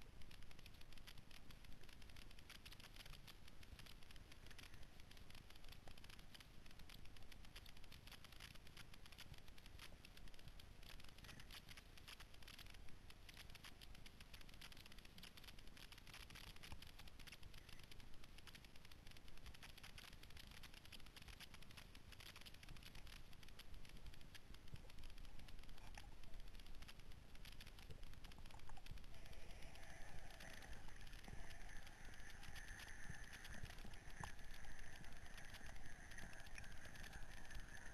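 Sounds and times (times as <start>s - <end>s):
underwater reef clicking: 0.0s - 37.9s
faint rough tone: 24.8s - 37.9s.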